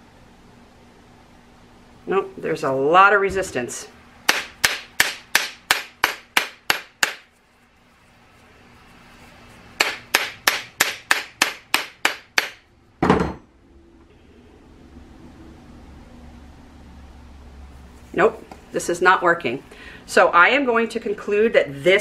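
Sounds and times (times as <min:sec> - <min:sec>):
sharp taps on plastic mold: 0:04.3 - 0:07.3.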